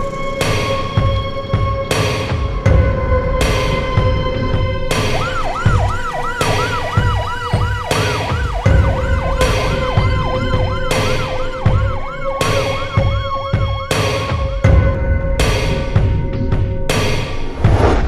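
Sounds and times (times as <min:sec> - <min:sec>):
dark film music: 0:00.0 - 0:17.5
siren yelping: 0:05.2 - 0:13.8.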